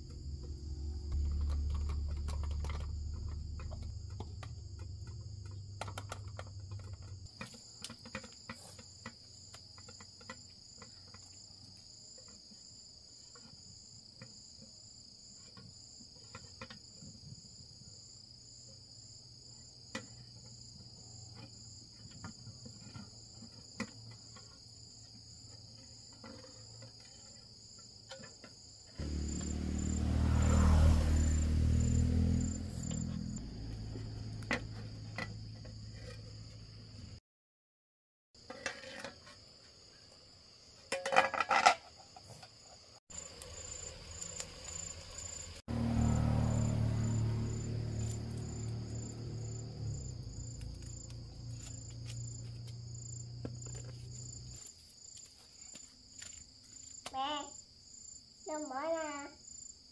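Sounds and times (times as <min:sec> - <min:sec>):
low rumble: 0:00.0 - 0:07.2
insects trilling: 0:41.7 - 0:59.9.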